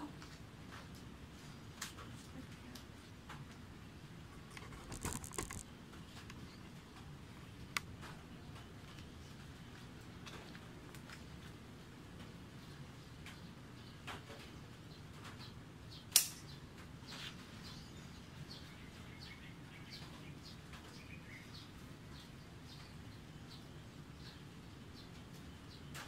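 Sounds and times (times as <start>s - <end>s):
sharp click: 16.1s - 16.5s.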